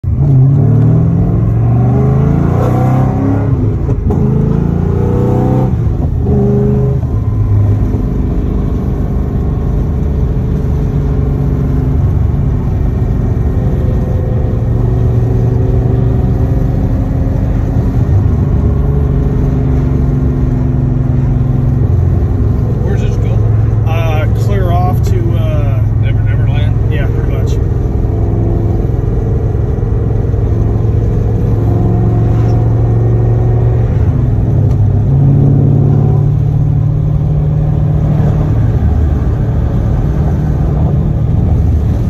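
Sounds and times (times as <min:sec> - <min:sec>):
car engine revving through upshifts: 0:00.1 - 0:42.0.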